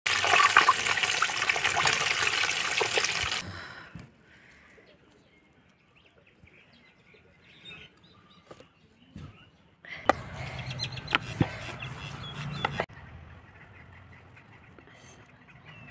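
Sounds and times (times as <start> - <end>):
potato rolls deep-frying in oil: 0.1 - 3.4.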